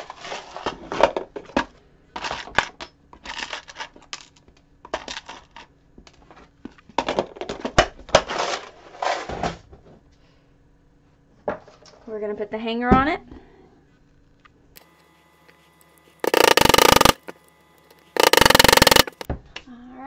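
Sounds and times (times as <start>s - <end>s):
nails rattling in plastic box: 18.2s - 19.2s.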